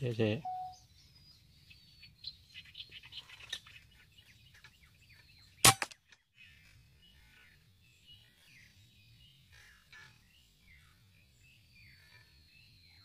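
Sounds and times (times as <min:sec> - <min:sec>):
small birds chirping: 0:00.0 - 0:13.0
air rifle shot: 0:05.6 - 0:06.0.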